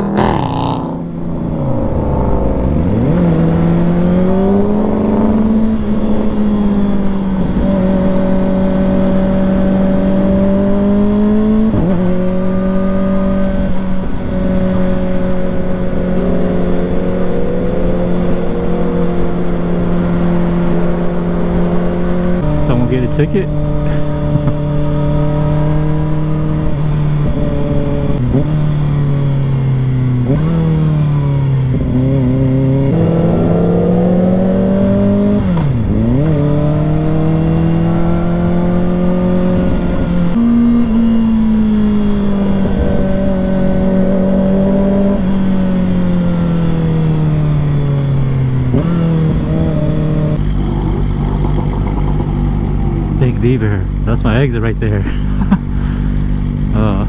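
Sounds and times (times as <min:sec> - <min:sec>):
low rumble: 0:00.0 - 0:05.4, 0:49.1 - 0:57.0
motorcycle engine running: 0:00.0 - 0:57.0.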